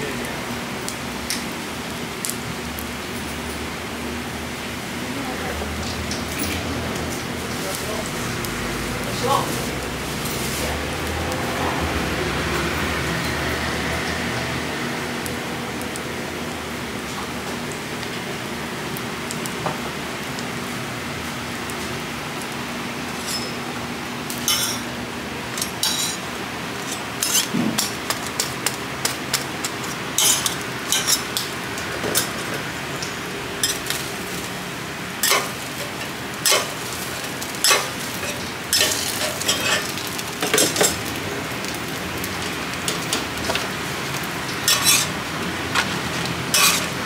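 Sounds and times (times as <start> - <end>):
oil frying hiss: 0.0 - 47.0
metal spatulas scraping griddle: 23.1 - 23.6, 24.3 - 24.9, 25.6 - 26.2, 26.8 - 31.5, 35.2 - 35.6, 36.4 - 37.0, 37.6 - 39.9, 44.6 - 47.0.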